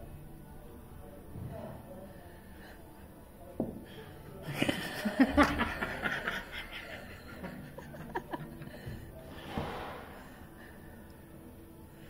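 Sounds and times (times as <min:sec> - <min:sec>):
person laughing: 0:04.5 - 0:08.7.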